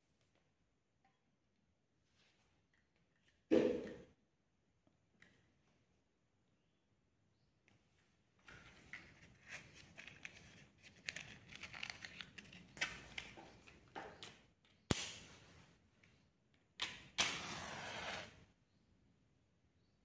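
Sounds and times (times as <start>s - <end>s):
matchbox clicks and rattles: 9.4s - 13.4s
match striking and flaring: 17.2s - 18.3s.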